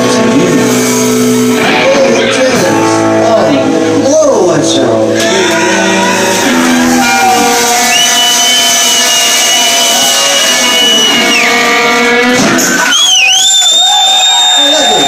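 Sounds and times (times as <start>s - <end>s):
high whistle: 7.8s - 11.7s, 12.6s - 15.0s.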